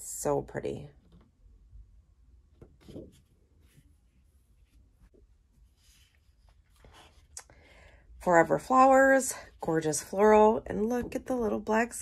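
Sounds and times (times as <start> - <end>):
paper sheets rustling: 5.7 - 7.4.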